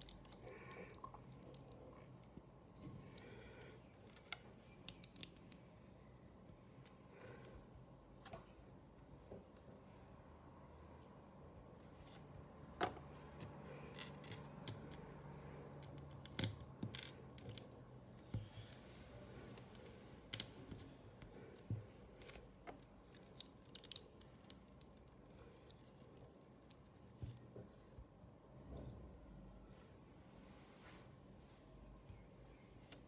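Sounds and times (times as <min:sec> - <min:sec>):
plastic bricks clicking and snapping: 0:00.0 - 0:01.9, 0:04.2 - 0:05.6, 0:22.6 - 0:25.0.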